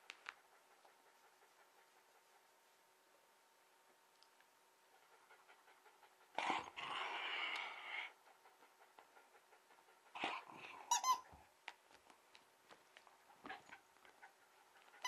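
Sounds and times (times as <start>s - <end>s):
squeaky toy squeaking: 10.9s - 11.3s.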